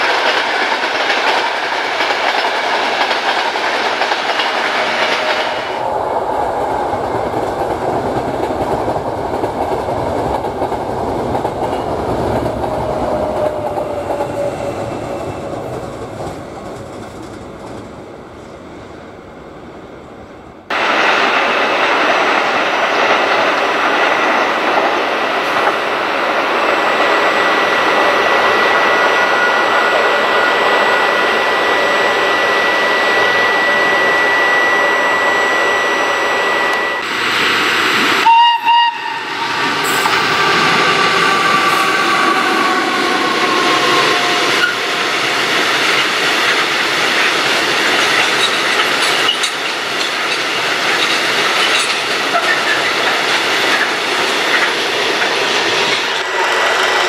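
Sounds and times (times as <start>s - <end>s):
train rolling wheel noise: 0.0s - 57.0s
slowly falling whine: 25.9s - 38.2s
train horn blast: 38.2s - 40.5s.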